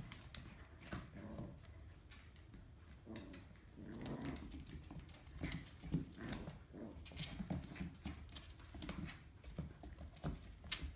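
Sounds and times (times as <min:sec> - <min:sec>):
dog claws on tiled floor: 0:00.0 - 0:10.9.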